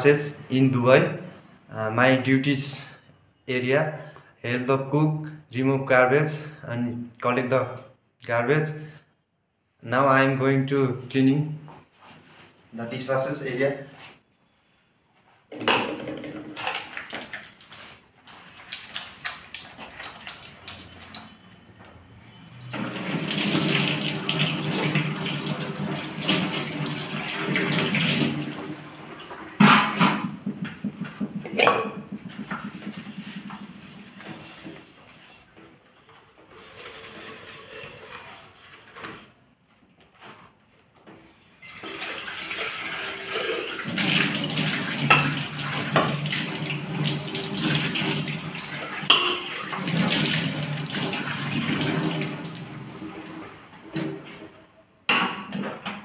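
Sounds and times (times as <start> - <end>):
pot being scrubbed: 29.3 - 35.5, 36.5 - 39.1, 49.0 - 52.2
pot knocking against sink: 29.6 - 34.3, 49.1 - 49.6.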